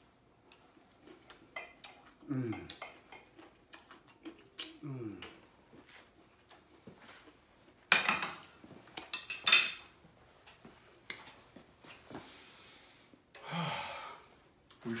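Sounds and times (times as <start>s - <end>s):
ceramic dishes clinking: 7.9s - 8.4s, 9.1s - 9.9s.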